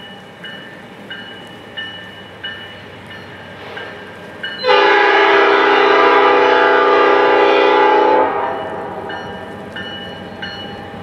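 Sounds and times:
locomotive air horn: 4.6 - 9.1
bell dinging: 8.6 - 10.9.

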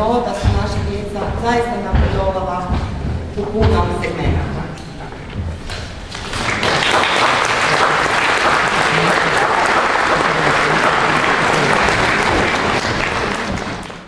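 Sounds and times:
audience applause: 6.1 - 14.0.

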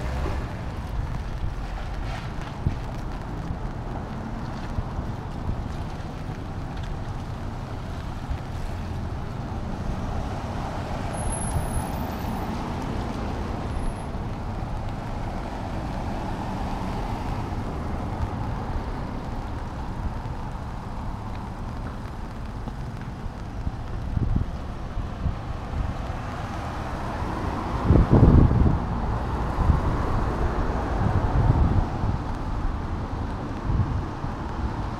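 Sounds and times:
tyres hissing on wet road: 0.0 - 34.9
wind noise on microphone: 23.1 - 34.9.

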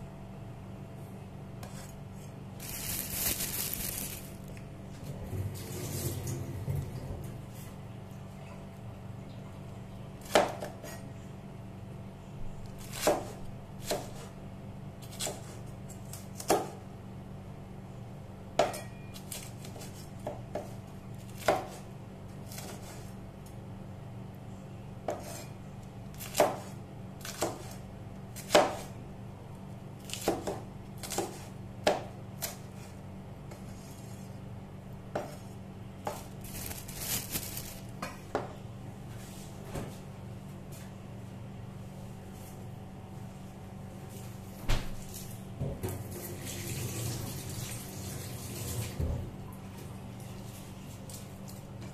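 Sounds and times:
steady low hum: 0.0 - 46.4
knife chopping on wooden board: 16.4 - 16.8, 35.1 - 35.4.

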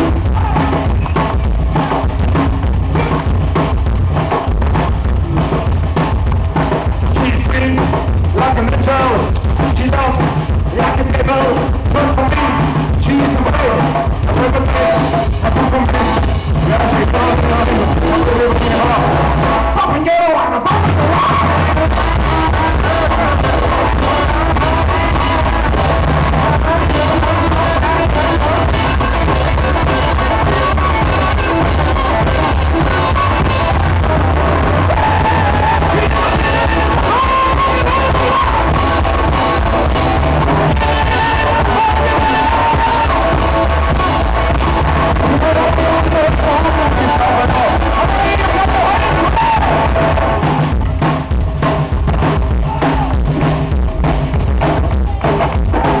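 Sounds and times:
drum kit: 0.0 - 56.0
electric guitar: 0.0 - 56.0
live rock and roll band: 0.0 - 56.0
person singing: 7.2 - 50.4.

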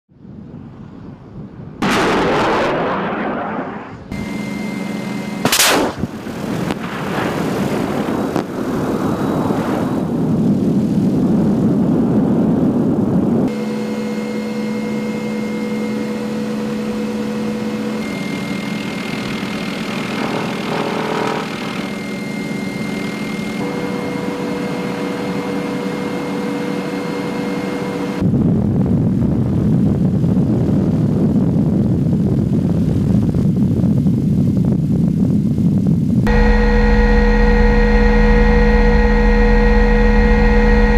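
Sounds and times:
sharp crack: 1.8 - 4.1, 5.4 - 6.9
loud blast with rushing tail: 1.8 - 4.2, 5.4 - 10.2
helicopter engine and rotors: 4.1 - 40.9.

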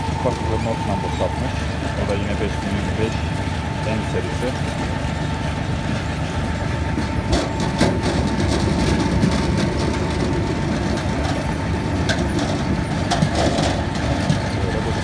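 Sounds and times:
thin steady whine: 0.0 - 4.6
conveyor rattling and rumbling: 0.0 - 15.0.

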